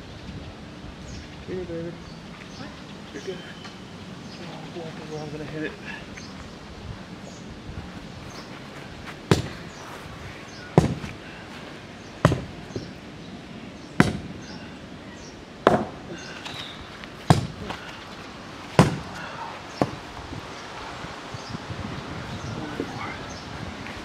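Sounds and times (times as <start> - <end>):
sledgehammer striking fence post: 9.3 - 9.6, 10.8 - 11.2, 12.2 - 12.9, 14.0 - 14.4, 15.6 - 16.0, 17.2 - 17.7, 18.8 - 19.2.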